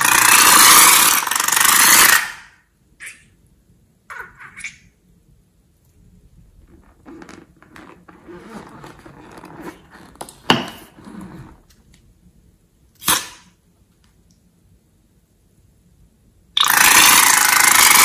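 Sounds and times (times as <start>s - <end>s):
rubber balloon rubbing: 6.4s - 11.7s
balloon neck snapping: 13.0s - 13.5s.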